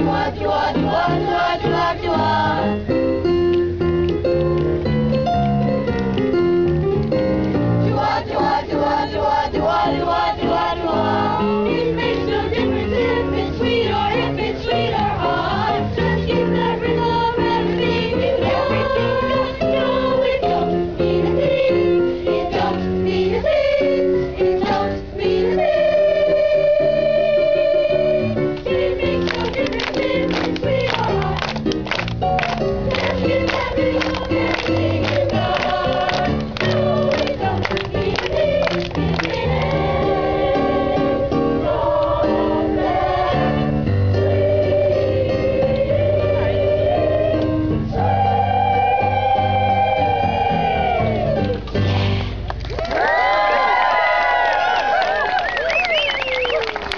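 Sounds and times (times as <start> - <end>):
boys' choir singing: 0.0 - 2.8, 7.8 - 31.6, 32.8 - 51.5
instrumental accompaniment: 0.0 - 52.6.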